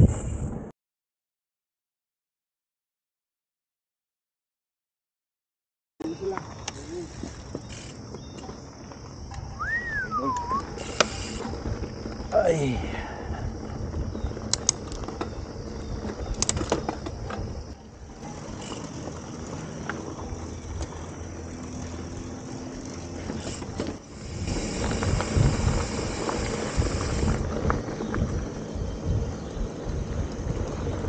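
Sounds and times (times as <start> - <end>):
bike tyre rumble on dirt: 0.0 - 0.7, 6.1 - 31.0
wind on microphone: 0.0 - 0.7, 9.2 - 18.2, 24.1 - 31.0
bike clicks and rattles: 6.3 - 9.5, 10.4 - 31.0.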